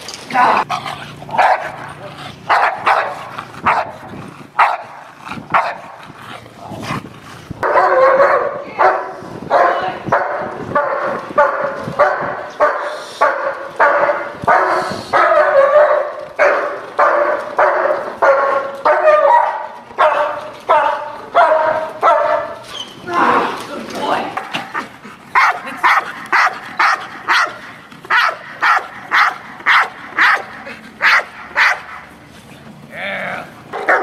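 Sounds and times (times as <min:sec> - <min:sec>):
dog barking steadily: 0:00.6 - 0:22.7, 0:24.4 - 0:32.2, 0:33.7 - 0:34.0
large dog sharp barks: 0:01.3 - 0:04.0, 0:04.6 - 0:06.0, 0:07.6 - 0:22.6, 0:24.7 - 0:32.1, 0:33.7 - 0:34.0.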